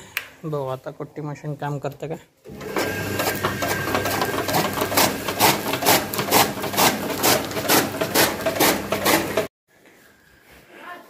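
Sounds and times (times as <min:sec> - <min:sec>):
blades chopping fodder: 0:02.5 - 0:09.5
chaff cutter motor hum: 0:02.5 - 0:09.5.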